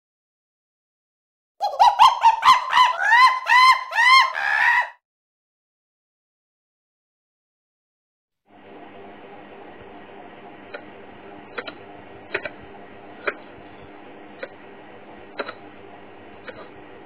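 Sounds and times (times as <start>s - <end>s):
steady background hum: 8.5s - 17.0s.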